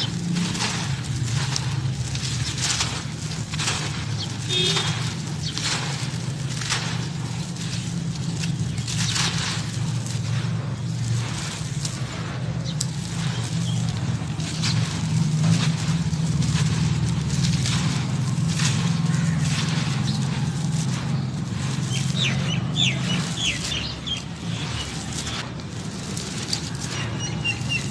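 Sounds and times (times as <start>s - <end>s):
dry earth crumbled by hand: 0.0s - 27.9s
bird chirping: 21.2s - 25.4s, 27.1s - 27.9s.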